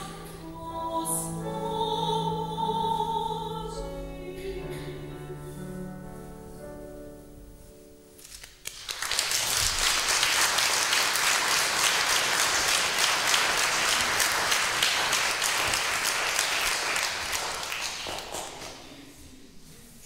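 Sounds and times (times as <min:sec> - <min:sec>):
audience applauding: 0:08.6 - 0:19.0.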